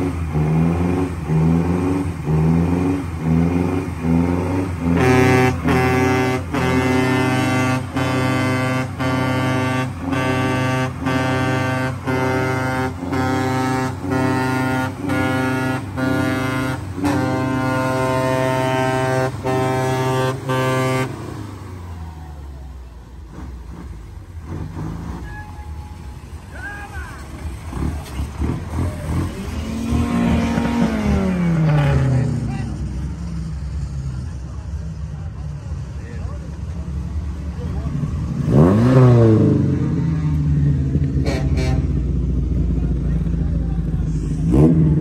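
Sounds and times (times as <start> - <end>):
engine running: 0.0 - 45.0
musical air horn playing a tune: 4.9 - 21.2, 41.2 - 42.0.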